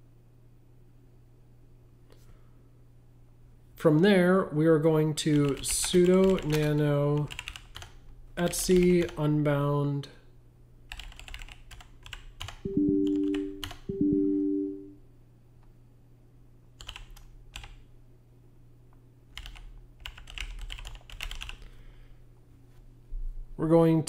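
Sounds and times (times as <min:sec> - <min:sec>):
computer keyboard typing: 0:05.2 - 0:09.3, 0:10.9 - 0:14.8, 0:16.8 - 0:17.8, 0:19.3 - 0:21.7
electronic tones: 0:12.7 - 0:15.0.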